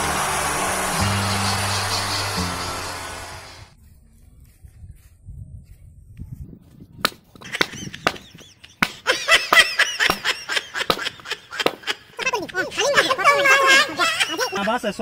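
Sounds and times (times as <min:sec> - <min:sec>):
high wavering pitched sound: 0:00.0 - 0:03.8.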